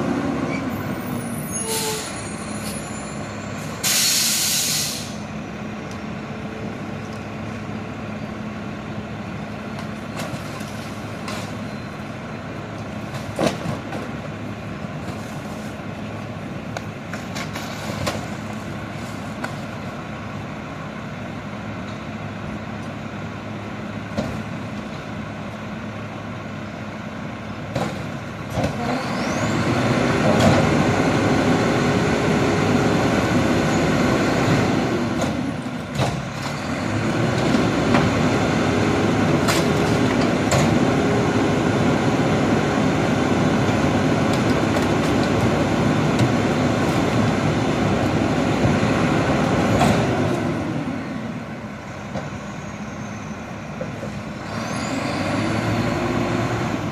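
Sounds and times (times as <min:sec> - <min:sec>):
garbage truck engine revving: 0:27.5 - 0:51.6, 0:54.3 - 0:56.9.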